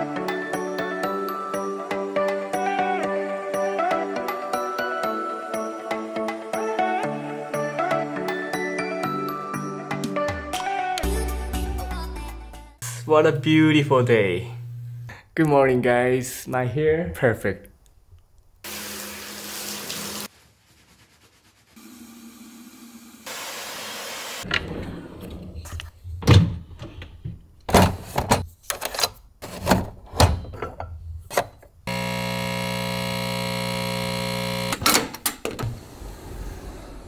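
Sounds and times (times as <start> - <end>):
steady electric hum: 12.8 - 15.2, 31.9 - 34.8.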